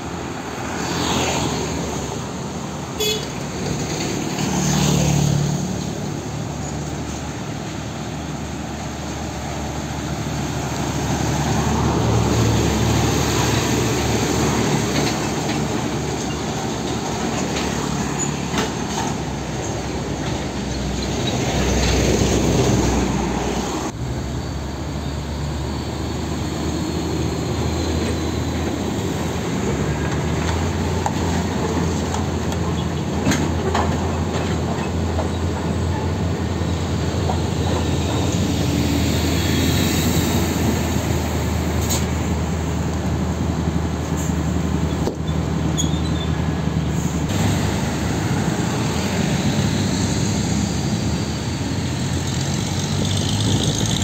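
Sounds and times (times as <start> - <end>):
diesel truck engines rumbling: 0.0 - 54.0
tyre and road noise: 0.0 - 54.0.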